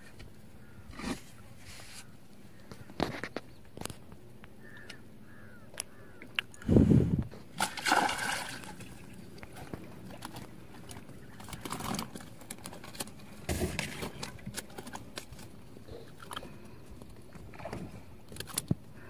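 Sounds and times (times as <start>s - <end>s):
fish splashing at water surface: 7.6s - 10.5s.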